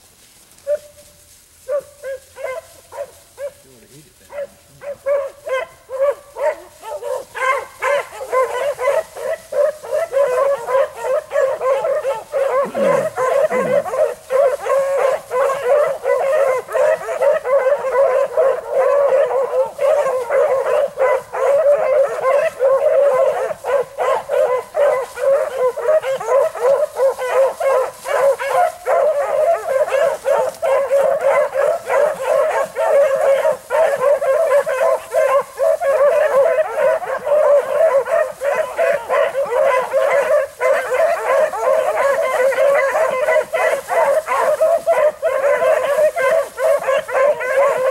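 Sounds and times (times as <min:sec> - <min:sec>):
hounds baying: 0:00.6 - 0:47.9.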